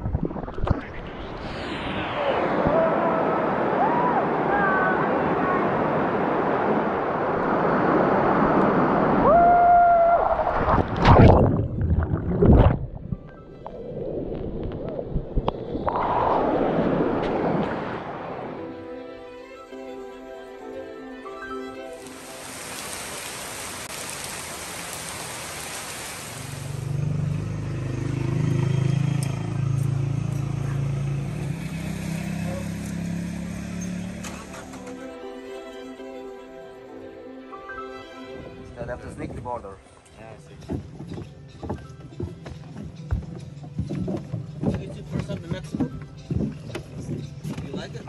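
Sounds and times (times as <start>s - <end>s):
waterfall rushing: 2.3s - 9.6s, 20.6s - 26.9s
person whooping: 2.6s - 5.1s, 9.2s - 10.5s
loud splashing: 10.2s - 13.1s
heavy rain on pavement: 22.0s - 26.9s.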